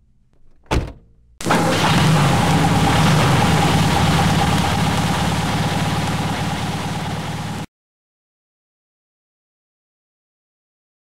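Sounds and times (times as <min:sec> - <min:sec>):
car engine driving off: 0:01.4 - 0:07.7.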